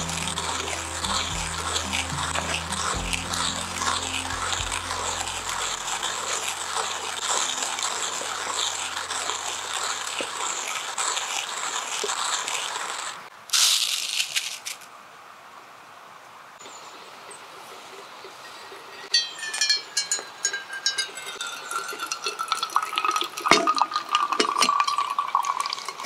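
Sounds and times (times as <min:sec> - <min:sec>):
hand coffee grinder grinding beans: 0:00.0 - 0:14.9.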